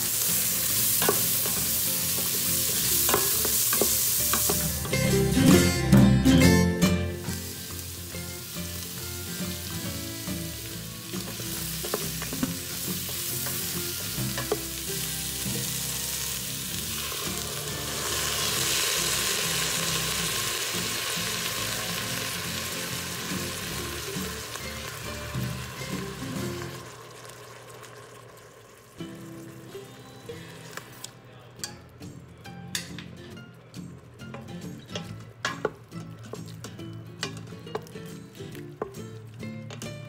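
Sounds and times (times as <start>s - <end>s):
vegetables sizzling in a pot: 0.0s - 31.8s
broth pouring into hot pot: 16.5s - 29.6s.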